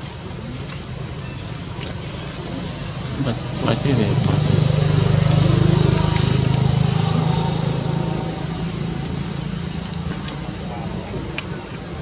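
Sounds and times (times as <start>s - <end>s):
motor engine droning: 1.9s - 10.6s.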